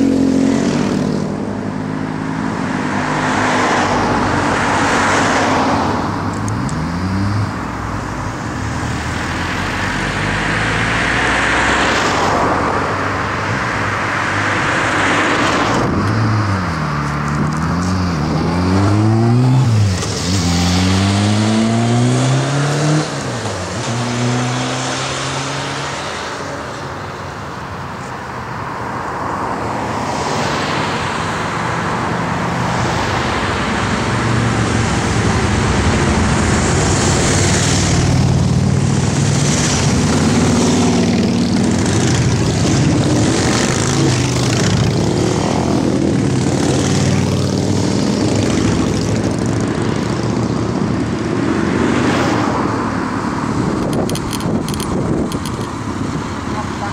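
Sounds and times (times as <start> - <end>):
motorcycles riding past: 32.4 - 53.7.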